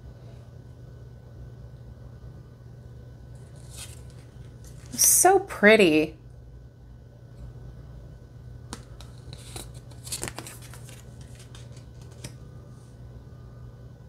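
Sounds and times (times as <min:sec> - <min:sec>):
low hum: 0:00.0 - 0:14.0
cards clicking and sliding: 0:03.6 - 0:05.0, 0:08.7 - 0:12.4.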